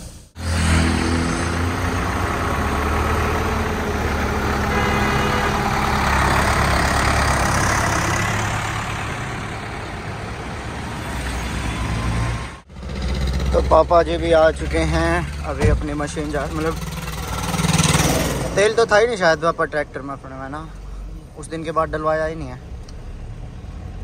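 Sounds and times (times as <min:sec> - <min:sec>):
rushing road noise: 0:00.0 - 0:24.0
vehicle engine running: 0:00.4 - 0:10.6, 0:12.6 - 0:20.0.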